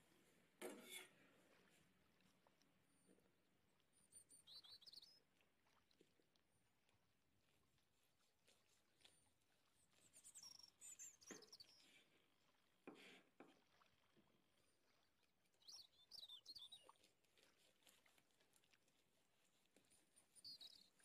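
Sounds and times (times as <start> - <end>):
faint high chirps: 4.0 - 5.2, 10.2 - 12.0, 15.6 - 17.0, 20.2 - 21.0.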